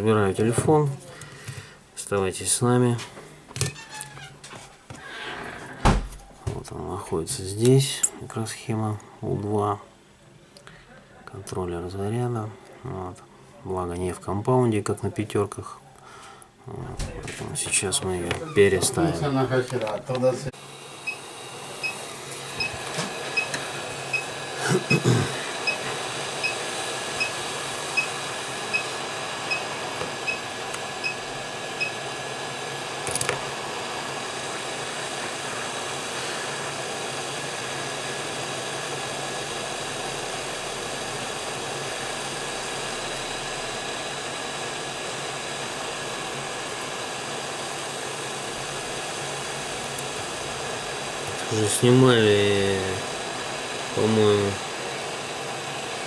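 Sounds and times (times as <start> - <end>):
hot air gun blowing: 20.6 - 56.0
short regular beeps: 29.5 - 29.7, 31.0 - 31.2.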